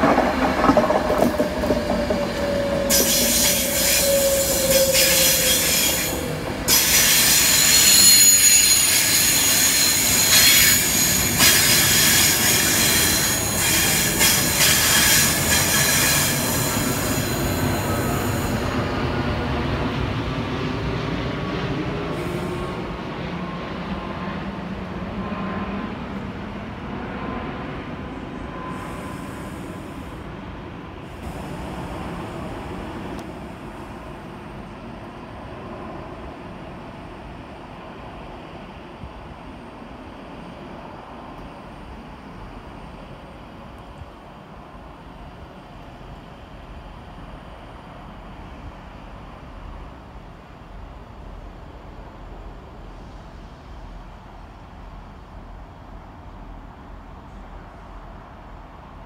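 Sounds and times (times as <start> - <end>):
electric train braking: 1.0 - 18.7
wheel and brake squeal: 2.3 - 18.3.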